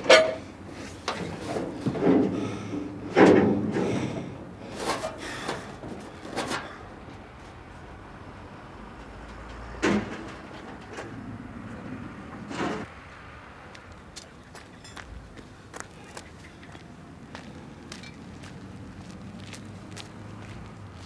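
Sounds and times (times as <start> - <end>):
scrap metal clanking and banging: 0.0 - 6.9, 9.0 - 12.9.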